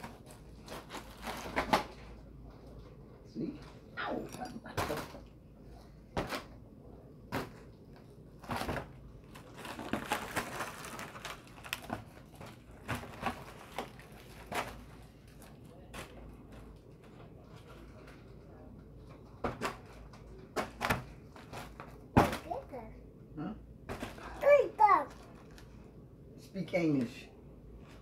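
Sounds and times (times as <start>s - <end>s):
foil balloon crinkling: 8.4s - 18.3s.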